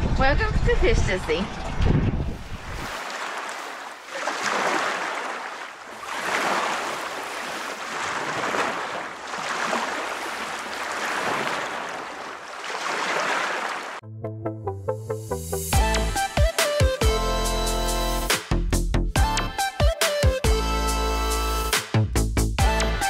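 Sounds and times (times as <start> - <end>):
waves washing: 2.3 - 14.0.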